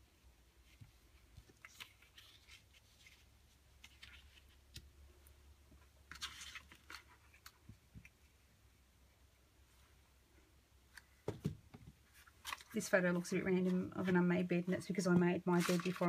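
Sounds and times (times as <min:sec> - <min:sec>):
paper and cards rustling: 0:00.6 - 0:04.9, 0:05.8 - 0:08.2, 0:12.0 - 0:16.0.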